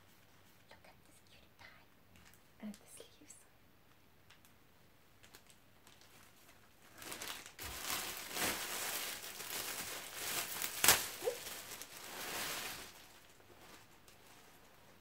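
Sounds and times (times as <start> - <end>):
plastic packaging crinkling: 5.2 - 15.0.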